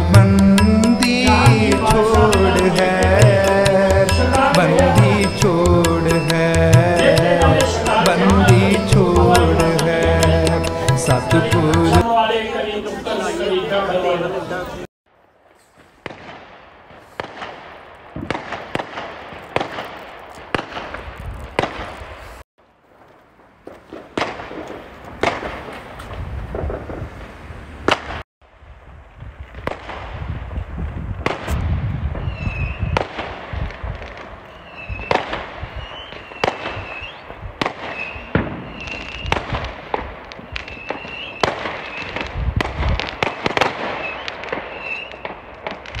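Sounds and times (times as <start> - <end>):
fireworks bangs and cracks: 15.8 - 46.0.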